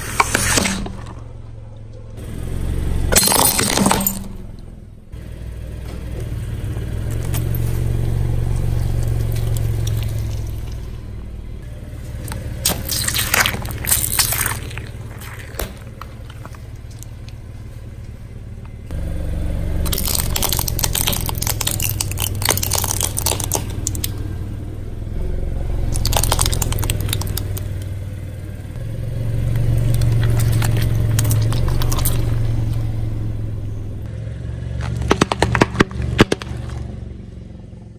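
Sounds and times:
car engine running low: 0.0 - 37.9
tyre crushing plastic objects: 12.2 - 17.2, 19.8 - 24.2, 25.9 - 27.6, 34.8 - 36.9.

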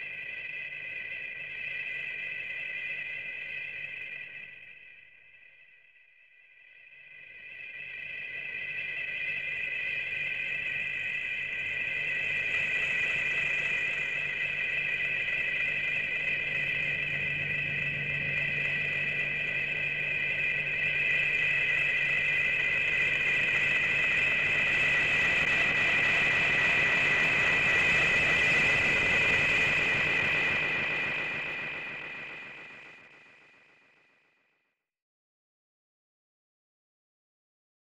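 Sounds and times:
high whine with low hum: 7.4 - 33.8.

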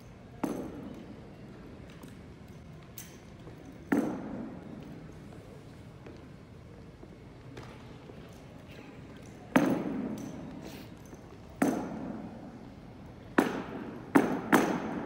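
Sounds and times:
rifles and boots knocking on floor: 3.8 - 4.5, 9.5 - 10.3.

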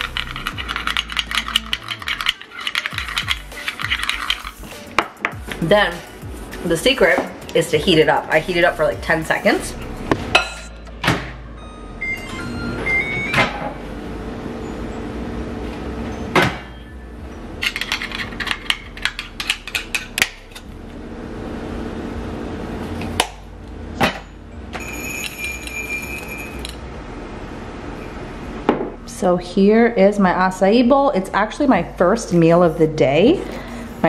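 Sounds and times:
spoon scraping ceramic ramekin: 0.0 - 4.7
microwave humming: 9.8 - 29.2
long steady beep: 11.5 - 13.6
microwave keypad beeps: 11.6 - 13.7.

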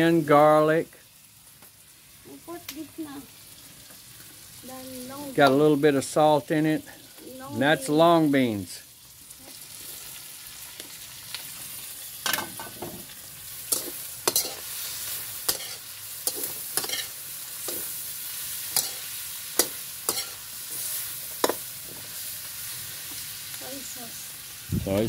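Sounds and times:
food sizzling in a wok: 0.0 - 25.0
spatula clinking against pan: 18.8 - 19.0, 19.6 - 20.4.

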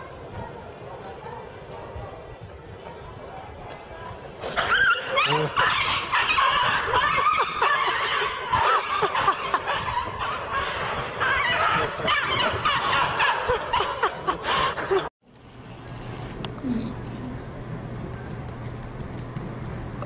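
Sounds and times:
people laughing and giggling: 5.0 - 15.1.

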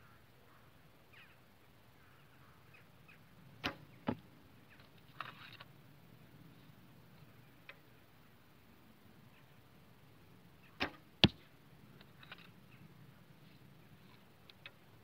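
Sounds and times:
arrow striking target: 3.6 - 4.2, 10.8 - 11.5
bowstring release thump: 3.6 - 4.2, 10.8 - 11.4.

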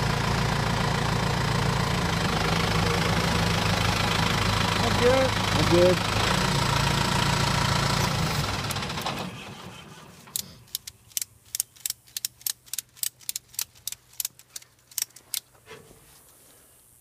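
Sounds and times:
engine running: 0.0 - 15.2
ratchet strap clicking: 10.3 - 15.5.

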